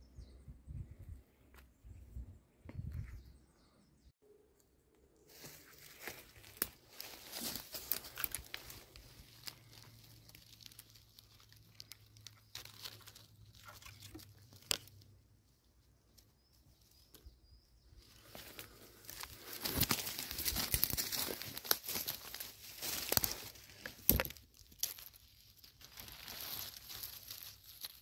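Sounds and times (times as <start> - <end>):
footsteps through dry leaves: 5.3 - 14.2, 18.0 - 28.0.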